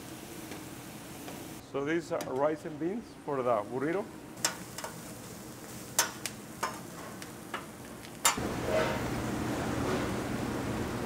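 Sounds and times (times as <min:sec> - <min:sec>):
kitchen noise with low hum: 0:00.0 - 0:11.0
metal spatulas clacking on griddle: 0:06.0 - 0:06.8.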